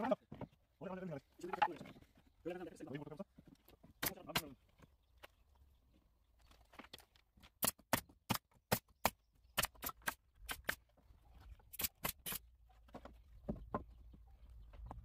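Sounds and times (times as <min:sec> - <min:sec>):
pneumatic nailer firing nails: 0:07.6 - 0:10.8, 0:11.7 - 0:12.5.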